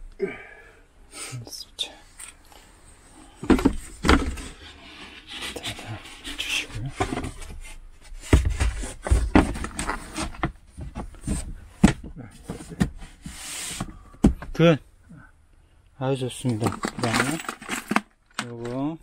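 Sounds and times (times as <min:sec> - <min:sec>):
wood scraping against wood: 0:03.1 - 0:11.6, 0:12.4 - 0:14.0.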